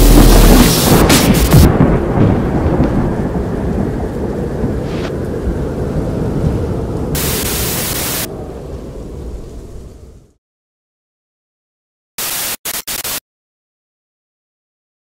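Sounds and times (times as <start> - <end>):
low thunder-like rumble: 0.0 - 10.4
bright rush of hiss: 7.2 - 8.3
hiss: 7.2 - 8.3.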